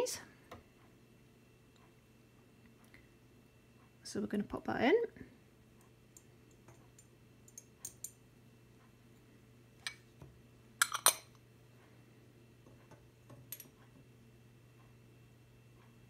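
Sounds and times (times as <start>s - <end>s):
faint steady hum: 0.0s - 16.0s
metal tweezers clinking on glass: 10.8s - 11.3s.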